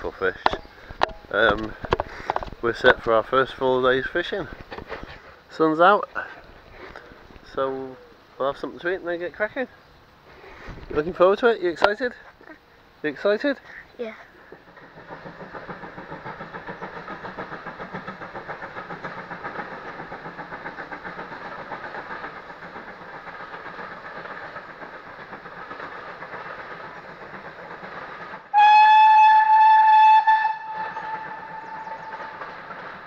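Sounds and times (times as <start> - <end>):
steam train rhythmic beat: 14.6 - 33.0
steam whistle: 28.5 - 32.0.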